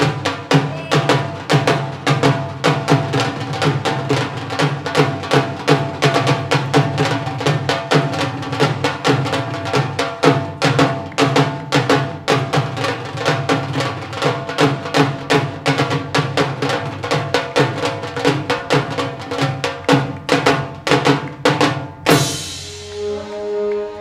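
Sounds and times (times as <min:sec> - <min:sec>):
drum kit beat: 0:00.0 - 0:24.0
sustained held notes: 0:22.2 - 0:24.0.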